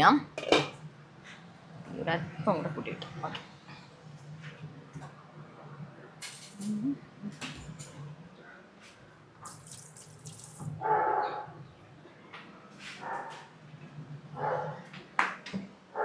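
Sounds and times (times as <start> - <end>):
dog barking: 10.8 - 11.6, 13.0 - 13.5, 14.4 - 14.8.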